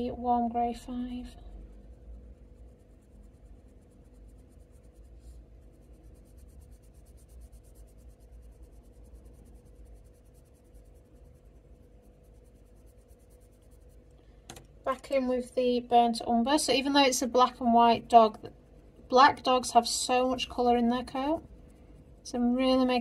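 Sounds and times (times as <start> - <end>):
pencil scratching on paper: 1.0 - 14.1, 19.4 - 23.0.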